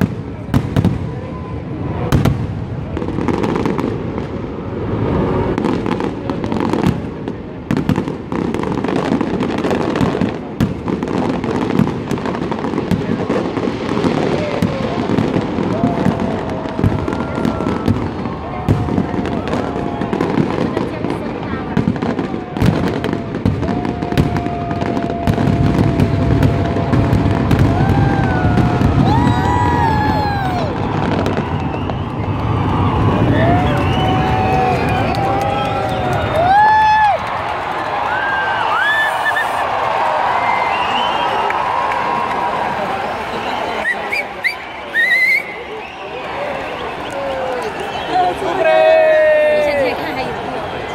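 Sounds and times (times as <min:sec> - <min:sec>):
fireworks sharp cracks: 0:00.0 - 0:01.4, 0:02.0 - 0:48.6
steady whistle-like tone: 0:43.3 - 0:48.4.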